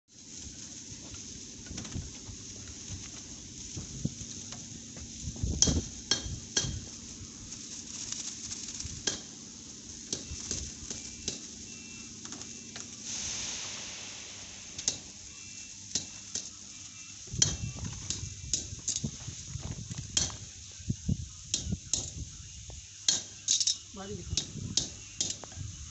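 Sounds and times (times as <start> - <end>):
tools striking metal: 5.6 - 6.9, 20.2 - 20.4, 23.1 - 23.8, 24.4 - 25.5
short hiss: 11.2 - 19.4.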